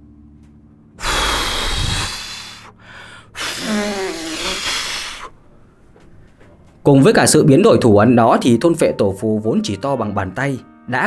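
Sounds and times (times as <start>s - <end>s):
man blowing into microphone: 1.0s - 5.3s
groaning voice: 3.4s - 5.2s.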